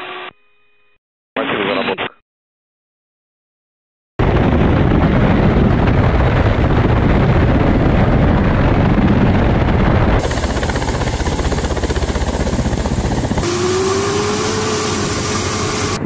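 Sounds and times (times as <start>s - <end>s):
helicopter rotors and engines: 4.2s - 16.0s.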